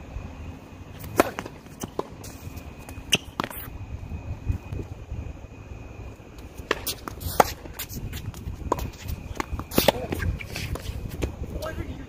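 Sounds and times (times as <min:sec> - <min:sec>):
tennis racket hitting ball: 0:01.0 - 0:02.2
tennis ball bouncing on hard court: 0:06.6 - 0:11.3.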